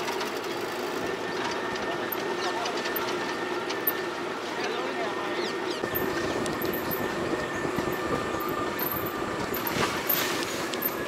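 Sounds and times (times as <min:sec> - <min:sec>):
vehicle engine drone: 0:00.0 - 0:11.0
vehicle rattling over rough ground: 0:05.7 - 0:11.0.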